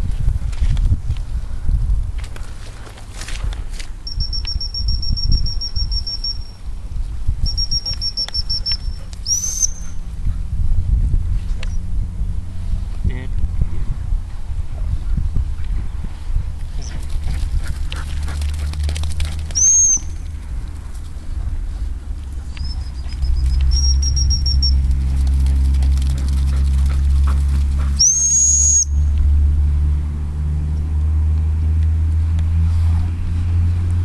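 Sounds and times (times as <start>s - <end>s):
steady low rumble: 0.0s - 34.0s
rustling and crackling: 2.2s - 4.0s
dog training whistle blasts: 4.1s - 6.6s, 7.4s - 9.9s, 22.6s - 24.8s, 28.0s - 28.9s.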